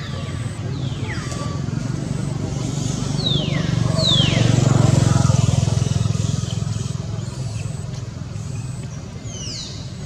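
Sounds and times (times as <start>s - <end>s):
vehicle engine passing: 0.0s - 10.0s.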